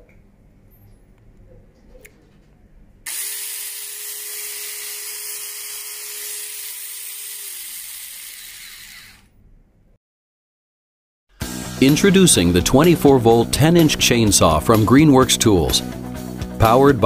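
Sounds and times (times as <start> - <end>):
electric chainsaw whining: 3.1 - 9.3.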